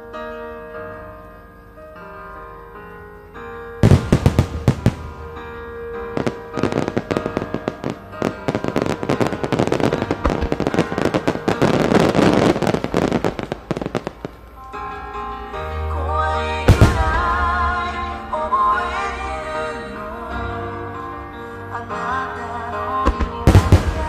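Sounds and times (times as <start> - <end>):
firework shells bursting: 3.8 - 14.8.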